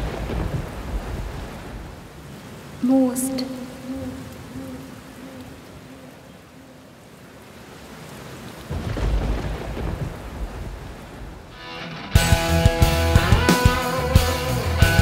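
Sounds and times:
thunder rumbling: 0.0s - 2.2s, 8.7s - 11.6s
steady rain: 0.0s - 15.0s.

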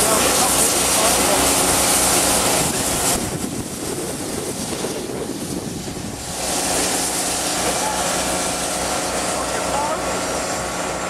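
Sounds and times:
steam locomotive hissing: 0.0s - 11.0s
wind rumble on microphone: 2.2s - 7.6s.

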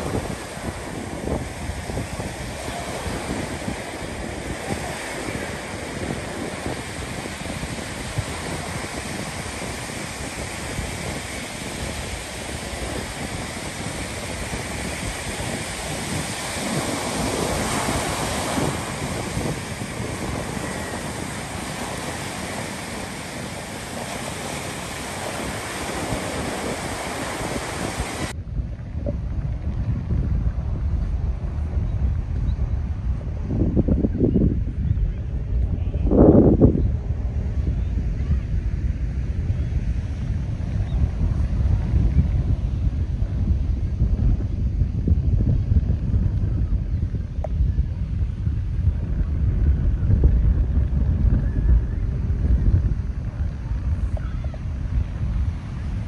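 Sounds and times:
small waves breaking on sand: 0.0s - 28.4s, 49.8s - 56.0s
wind buffeting microphone: 0.0s - 56.0s.

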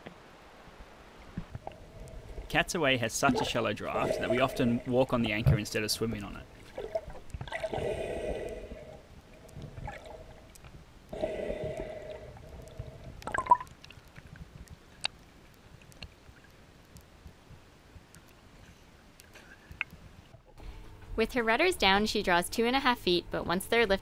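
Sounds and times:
muffled underwater gurgling: 1.8s - 5.7s.

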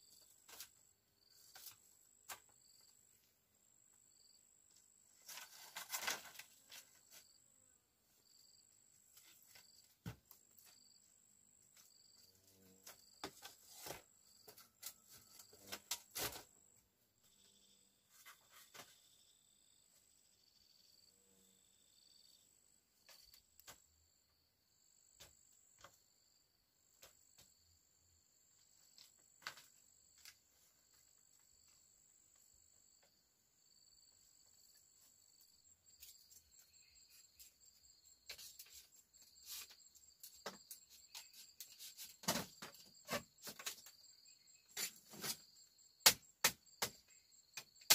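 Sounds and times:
crickets trilling: 32.4s - 47.9s.

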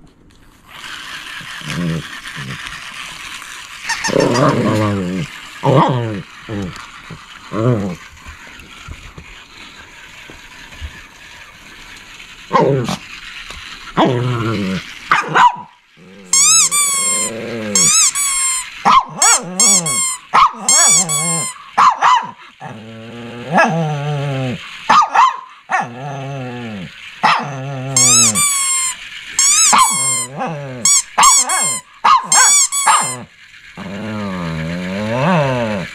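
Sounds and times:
small dog barking and yipping: 15.1s - 15.8s, 18.8s - 22.4s, 24.9s - 25.9s, 27.2s - 33.3s.

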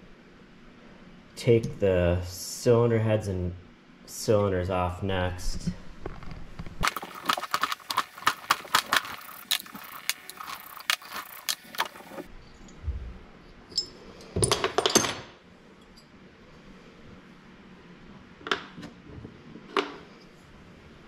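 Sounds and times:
metal tools clinking on a workbench: 13.7s - 16.1s.

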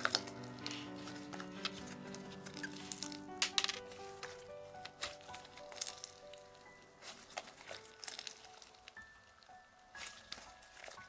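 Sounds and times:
soft background music: 0.0s - 11.0s
slime squishing when kneaded: 3.9s - 11.0s.

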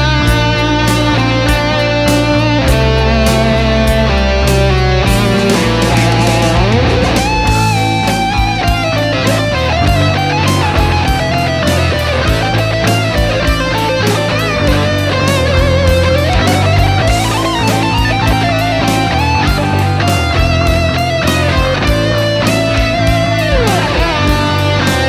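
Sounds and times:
beat with bass: 0.0s - 25.0s
electric guitar lead: 0.0s - 25.0s.

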